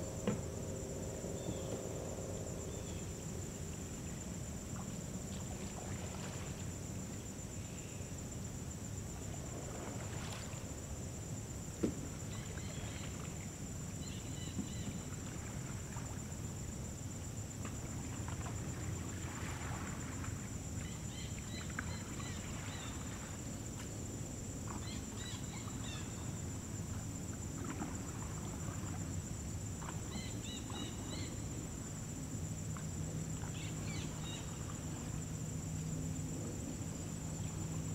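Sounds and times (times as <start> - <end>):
low wind rumble: 0.0 - 7.7
insect buzz: 0.0 - 37.9
canoe paddle strokes: 4.7 - 7.3, 9.2 - 10.8, 17.6 - 24.0, 26.4 - 31.6.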